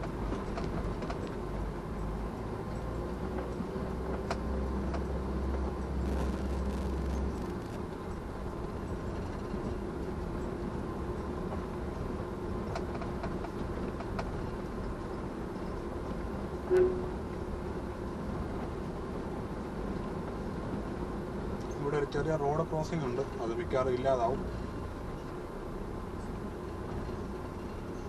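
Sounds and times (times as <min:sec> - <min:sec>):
deep rumble: 0:00.0 - 0:21.6
vehicle road and engine noise: 0:00.0 - 0:28.0.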